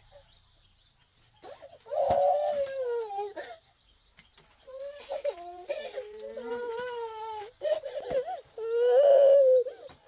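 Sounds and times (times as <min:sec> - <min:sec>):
baby crying: 0:01.4 - 0:03.6, 0:04.7 - 0:10.0.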